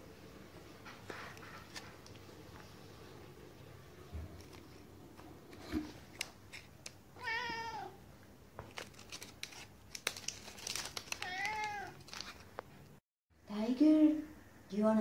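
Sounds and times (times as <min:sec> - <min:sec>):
cat meowing: 0:07.2 - 0:08.0, 0:11.2 - 0:12.0.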